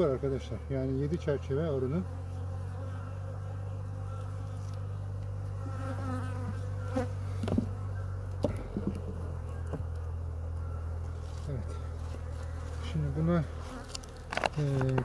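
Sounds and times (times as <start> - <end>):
bees humming: 0.0 - 15.0
hive tool knocking and scraping: 5.8 - 10.0, 13.6 - 15.0.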